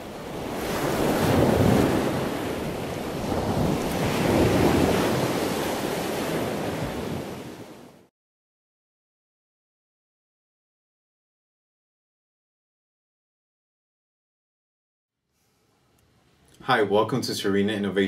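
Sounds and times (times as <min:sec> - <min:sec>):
rushing surf-like noise: 0:00.0 - 0:07.8.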